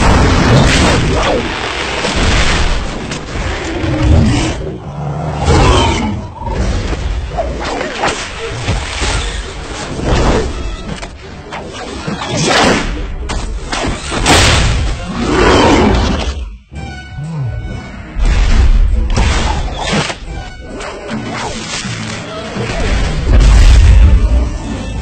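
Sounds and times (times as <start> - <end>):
creature roaring and growling: 3.8 - 6.6, 15.0 - 16.2.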